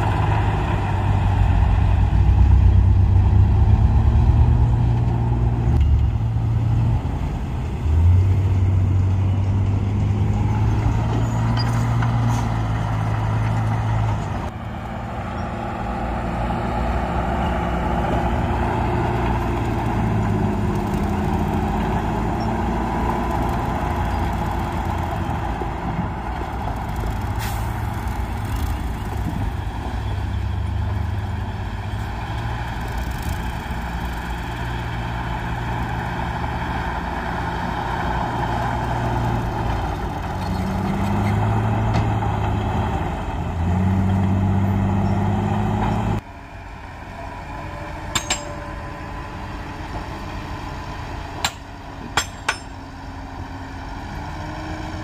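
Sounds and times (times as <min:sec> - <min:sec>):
heavy diesel engine running: 0:12.0 - 0:55.0.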